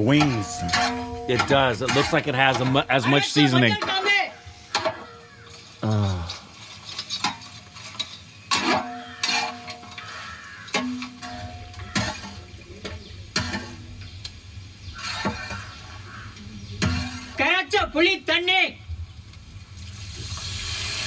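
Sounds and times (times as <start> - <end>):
pot ringing: 0.0 - 5.0, 8.5 - 12.6
metal ladle scraping pot: 0.0 - 14.1, 14.8 - 17.4
chicken sizzling: 0.0 - 17.6, 18.8 - 21.0.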